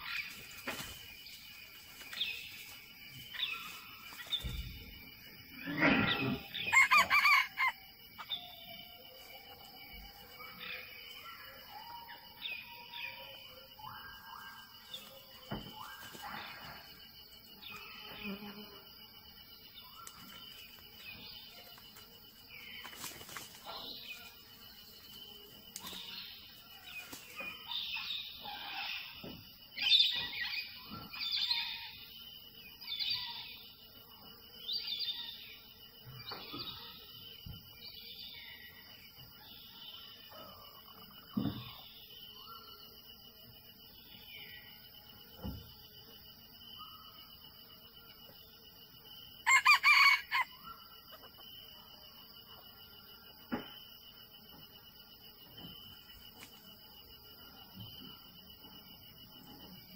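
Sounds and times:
forest birds chirping and whistling: 0:00.0 - 0:17.0, 0:22.5 - 0:33.8, 0:34.6 - 0:43.0
high insect trill: 0:00.0 - 0:59.9
rooster crowing: 0:06.6 - 0:07.8, 0:49.4 - 0:50.7.

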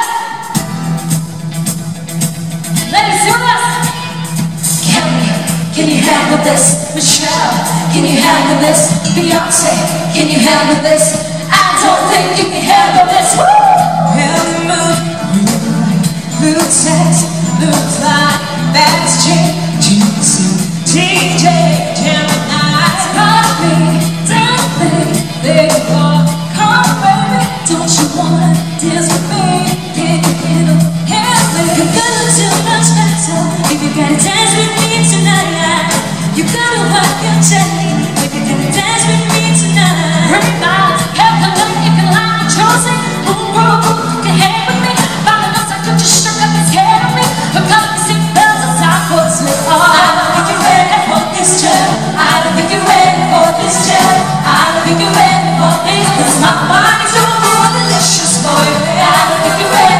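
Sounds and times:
women singing over a band: 0:00.0 - 0:00.6, 0:02.9 - 0:59.9.

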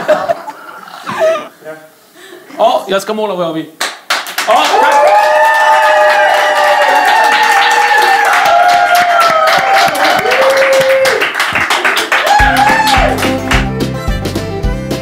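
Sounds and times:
fast dense clapping: 0:03.8 - 0:04.9, 0:07.1 - 0:13.9
people whooping and cheering: 0:04.5 - 0:13.4
guitar-led country music: 0:12.4 - 0:15.0.

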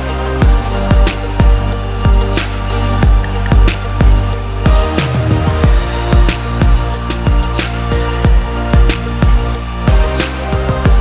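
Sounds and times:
held bass line: 0:00.0 - 0:11.0
kick drum: 0:00.4 - 0:02.3, 0:03.0 - 0:04.9, 0:05.6 - 0:07.5, 0:08.2 - 0:10.1, 0:10.8 - 0:11.0.

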